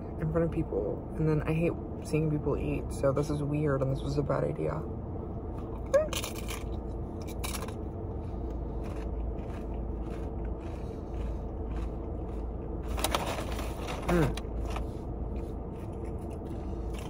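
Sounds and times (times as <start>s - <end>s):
chewing crisp lettuce: 6.2s - 17.0s.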